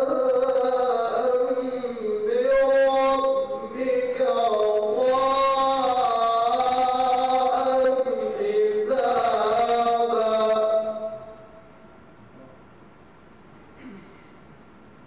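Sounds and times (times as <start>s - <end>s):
man reciting melodically: 0.0s - 11.6s.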